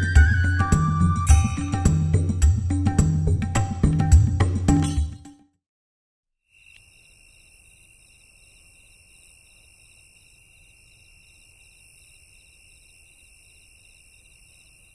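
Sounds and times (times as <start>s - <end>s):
crickets trilling: 6.5s - 14.9s.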